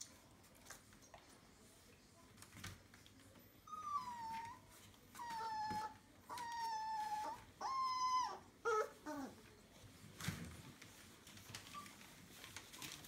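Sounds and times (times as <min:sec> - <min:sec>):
puppy whining: 0:03.6 - 0:09.6, 0:11.4 - 0:13.0.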